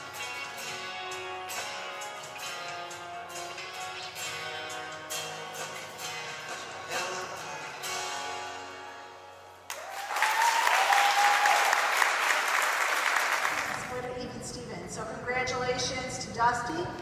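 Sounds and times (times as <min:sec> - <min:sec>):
acoustic guitar strumming: 0:00.0 - 0:09.7
audience applauding: 0:09.7 - 0:13.9.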